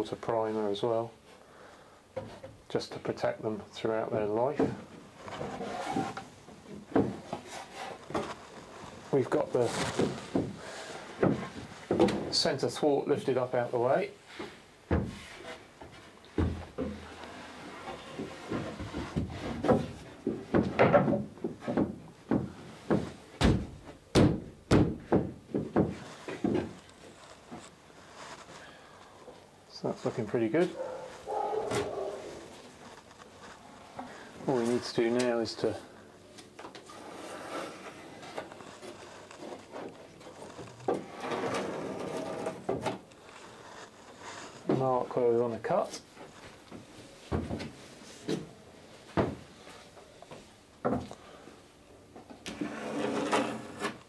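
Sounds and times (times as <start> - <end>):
wooden knocks and thumps: 4.6 - 7.5, 9.8 - 12.4, 14.4 - 17.2, 18.0 - 27.7, 46.7 - 48.5, 49.1 - 49.5, 50.8 - 51.2
wood rubbing: 4.6 - 12.4, 24.7 - 36.0, 36.8 - 48.4
wood knocking on wood: 18.5 - 26.8.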